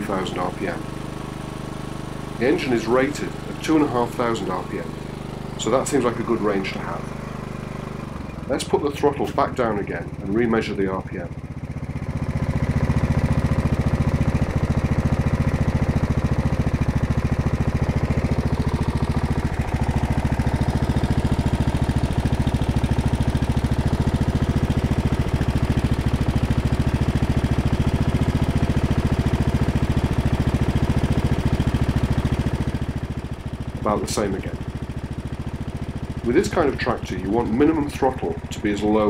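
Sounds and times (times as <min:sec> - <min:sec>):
lawn tractor engine idling: 0:00.0 - 0:39.0.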